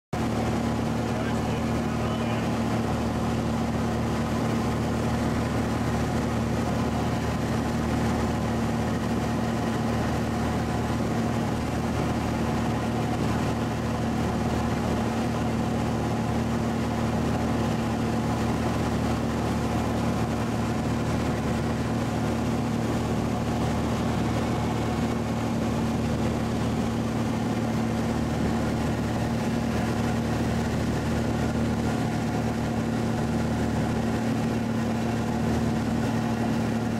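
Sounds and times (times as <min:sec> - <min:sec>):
light airplane engine and propeller: 0:00.1 - 0:36.9.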